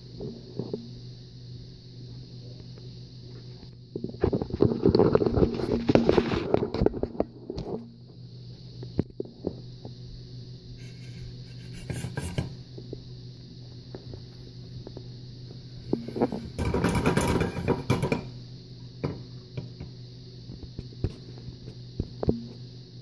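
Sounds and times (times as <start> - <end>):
low hum and hiss: 0.0 - 23.0
plastic bricks clattering into skillet: 16.1 - 18.3.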